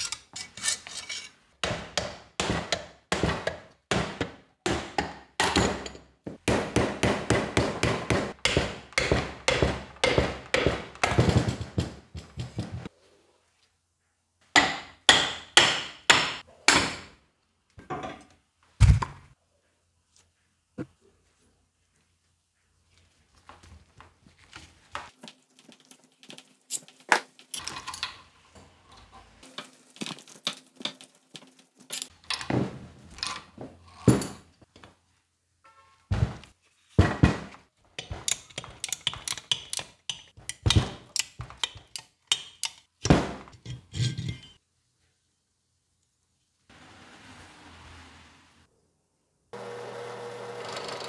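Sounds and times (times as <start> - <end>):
metal tools clinking on workbench: 5.4 - 6.2, 31.8 - 32.5, 43.6 - 44.6.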